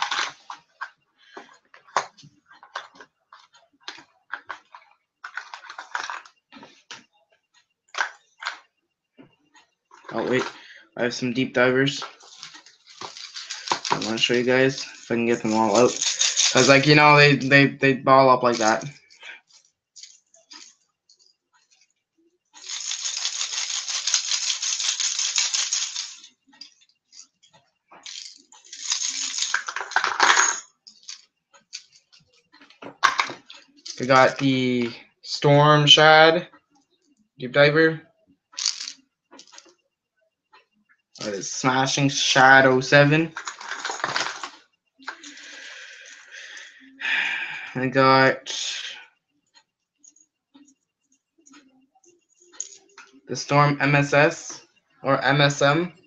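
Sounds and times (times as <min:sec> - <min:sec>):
fishing lures clattering together: 0:00.0 - 0:03.1, 0:03.9 - 0:06.3, 0:12.0 - 0:17.1, 0:28.0 - 0:32.0, 0:32.8 - 0:34.4, 0:38.6 - 0:39.7, 0:43.3 - 0:46.3.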